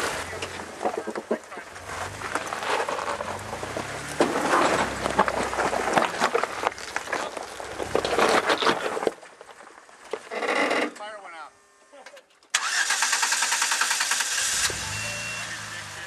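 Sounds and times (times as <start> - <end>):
car engine running low: 0.0 - 8.3
tyres crunching on rock and gravel: 0.0 - 10.3.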